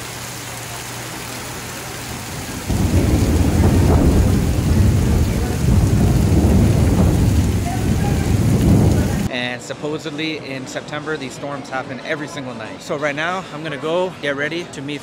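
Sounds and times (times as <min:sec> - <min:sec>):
heavy rain pouring: 0:00.0 - 0:09.3
thunder rumbling: 0:02.2 - 0:09.3.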